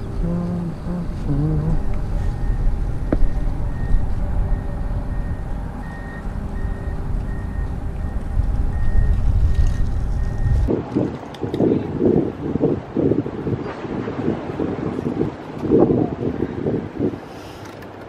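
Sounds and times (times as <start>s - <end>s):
wind buffeting microphone: 0.0s - 17.3s
faint high beep: 1.8s - 10.6s.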